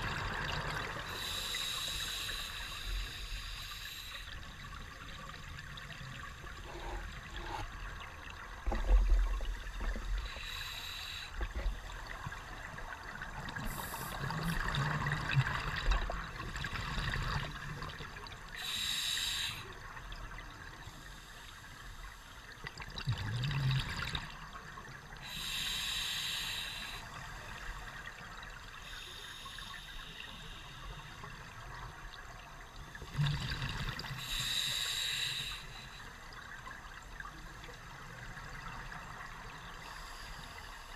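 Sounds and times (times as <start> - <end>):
regulator inhalation hiss: 1.1 - 4.4, 10.2 - 11.5, 13.6 - 14.3, 18.6 - 19.8, 25.2 - 27.2, 28.8 - 31.2, 34.2 - 36.1
exhaled bubbles rumbling: 11.5 - 18.2.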